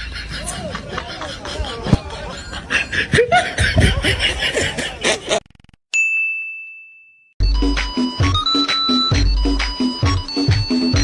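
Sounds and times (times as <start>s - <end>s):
bright ding: 6.0s - 7.2s
electronic music with steady beat: 7.4s - 11.0s.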